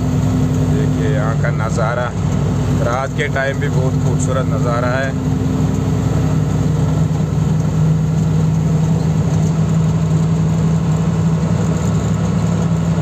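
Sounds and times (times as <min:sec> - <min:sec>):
diesel engine humming: 0:00.0 - 0:13.0.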